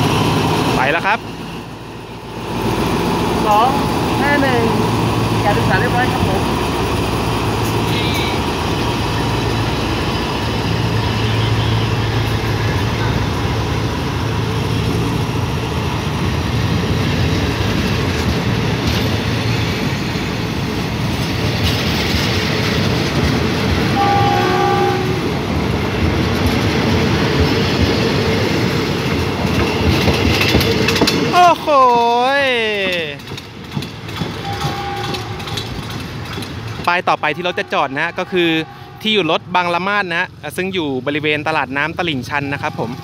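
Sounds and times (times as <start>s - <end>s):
train wheels clattering on rails: 2.4s - 37.6s
train horn note: 24.0s - 25.2s, 34.4s - 35.6s.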